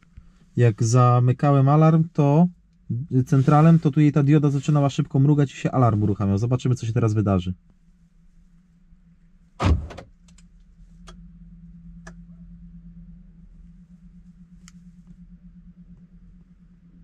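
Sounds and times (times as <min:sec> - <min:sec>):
low steady hum: 0:00.0 - 0:17.0
van door slamming shut: 0:09.6 - 0:10.1.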